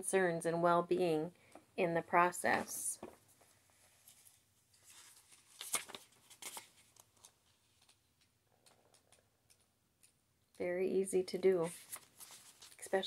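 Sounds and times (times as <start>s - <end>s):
paper pages rustling: 4.0s - 10.1s, 11.6s - 13.0s.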